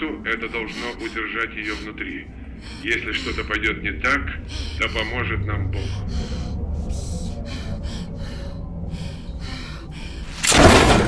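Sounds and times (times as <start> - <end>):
woman breathing heavily: 0.0 - 10.5
loud crash: 10.4 - 11.0.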